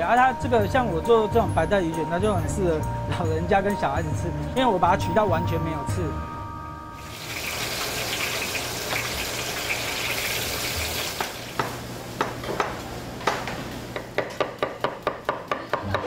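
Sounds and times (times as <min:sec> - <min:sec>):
food sizzling in hot oil: 0:07.0 - 0:11.9
knife chopping on cutting board: 0:11.6 - 0:16.0.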